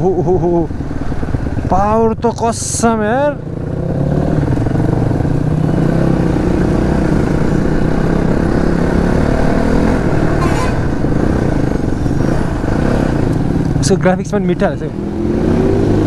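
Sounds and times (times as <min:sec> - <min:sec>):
dirt bike engine droning: 0:00.0 - 0:16.0.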